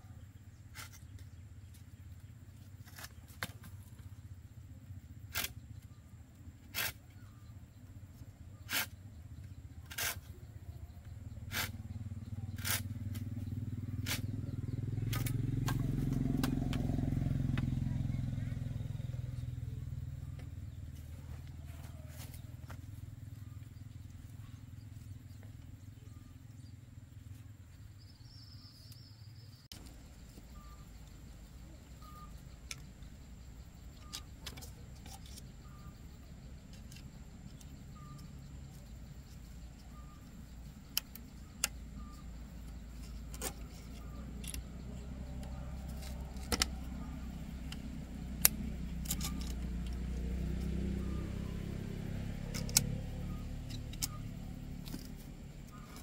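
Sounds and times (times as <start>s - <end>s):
sharp metal clicks: 40.7s - 56.0s.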